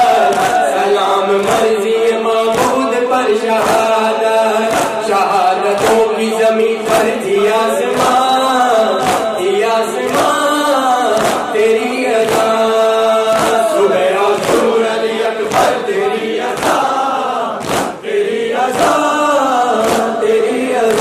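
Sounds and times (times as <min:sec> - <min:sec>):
hands beating chests: 0:00.0 - 0:01.8, 0:02.5 - 0:02.8, 0:04.6 - 0:05.2, 0:05.8 - 0:06.1, 0:06.8 - 0:07.2, 0:08.9 - 0:10.4, 0:11.1 - 0:12.6, 0:13.3 - 0:14.8, 0:15.4 - 0:16.9, 0:17.6 - 0:18.0, 0:18.7 - 0:19.0, 0:19.8 - 0:20.2
man singing a lament into a microphone: 0:00.0 - 0:17.6, 0:18.3 - 0:21.0
crowd of men chanting: 0:00.0 - 0:21.0.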